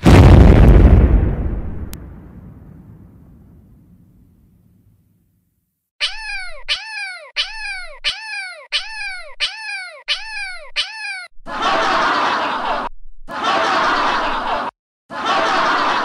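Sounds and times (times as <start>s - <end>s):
cartoon cat meows: 6.0s - 11.3s
cartoon laughter: 6.0s - 16.0s.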